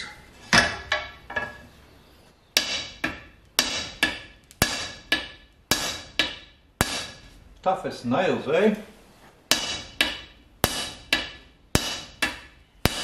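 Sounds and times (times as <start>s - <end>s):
hammer striking plastic on anvil: 2.6s - 7.3s, 9.5s - 13.0s.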